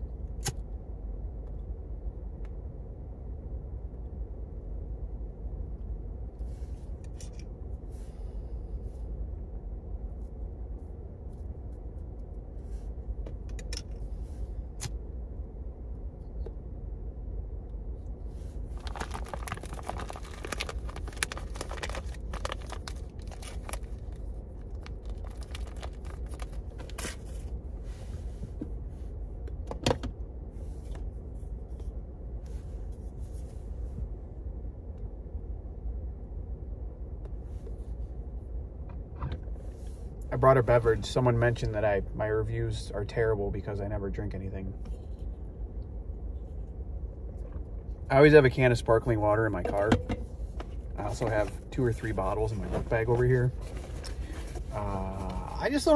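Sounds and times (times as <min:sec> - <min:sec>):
low car cabin rumble: 0:00.0 - 0:55.9
paper packaging crinkling: 0:18.7 - 0:27.3.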